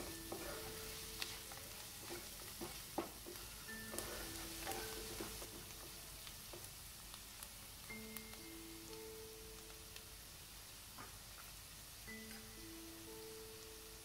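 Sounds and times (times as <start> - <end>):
onions sizzling in oil: 0.0 - 14.0
spatula knocking against pan: 2.0 - 6.0.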